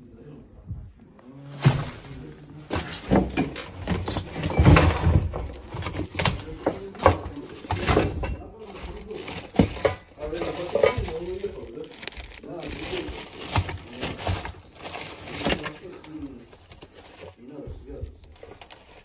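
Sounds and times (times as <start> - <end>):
objects knocking and rustling: 1.3 - 19.0.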